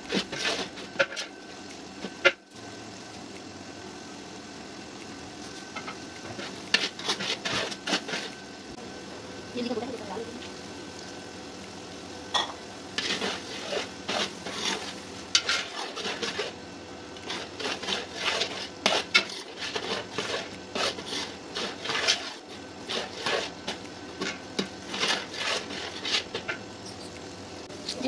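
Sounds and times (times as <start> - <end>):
metal ladle scraping a pot: 13.0 - 16.6, 17.2 - 23.6, 24.2 - 26.6.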